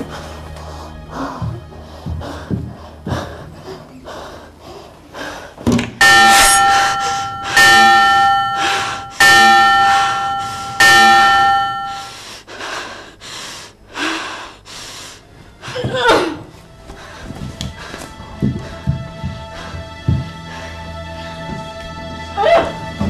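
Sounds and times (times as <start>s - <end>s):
person breathing hard: 0.0s - 5.8s, 6.6s - 21.8s
bell ringing: 6.0s - 12.1s.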